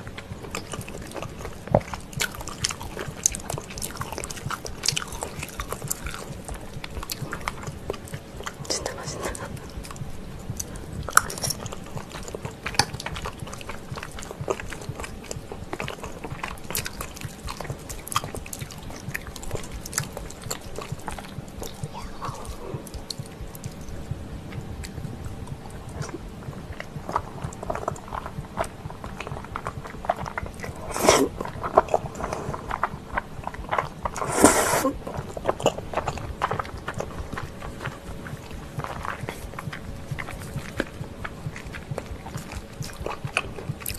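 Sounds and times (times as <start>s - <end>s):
chewing and wet mouth sounds: 0.0s - 43.9s
slurping noodles: 30.7s - 32.9s, 33.7s - 36.7s.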